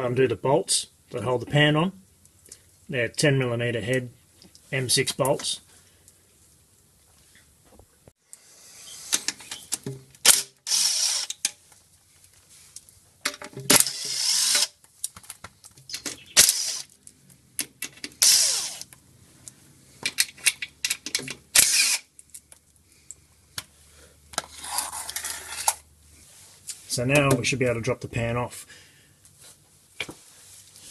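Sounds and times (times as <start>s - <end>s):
impact driver bursts: 10.2s - 11.4s, 13.7s - 14.8s, 16.4s - 16.9s, 18.2s - 18.9s, 21.6s - 22.1s.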